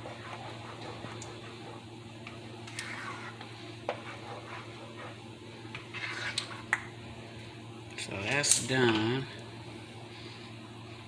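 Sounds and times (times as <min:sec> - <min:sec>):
spoon stirring thick sauce: 0:00.0 - 0:06.9
steady low hum: 0:00.0 - 0:11.0.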